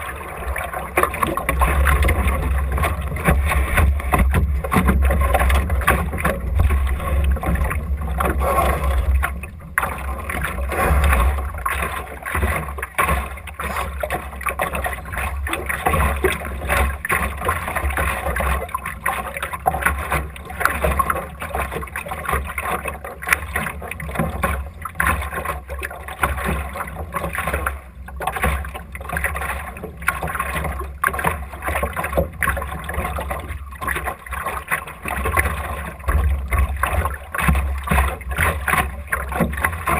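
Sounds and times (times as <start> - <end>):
wind rumble on microphone: 0.0 - 21.6
water slapping against boat hull: 0.0 - 39.9.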